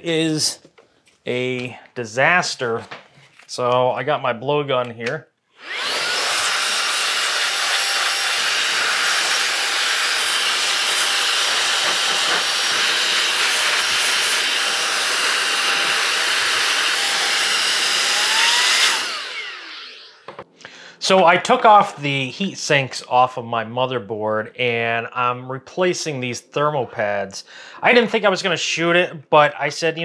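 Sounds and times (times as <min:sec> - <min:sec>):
air blow gun hissing: 0:05.6 - 0:19.7.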